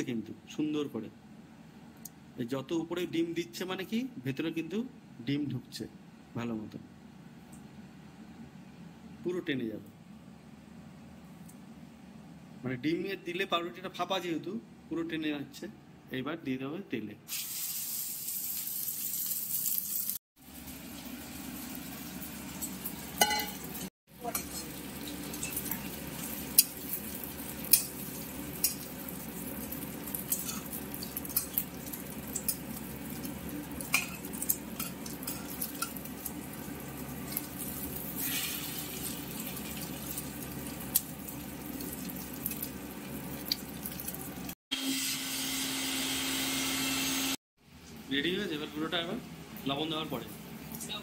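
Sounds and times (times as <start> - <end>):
bread sizzling in hot oil: 17.3 - 44.6.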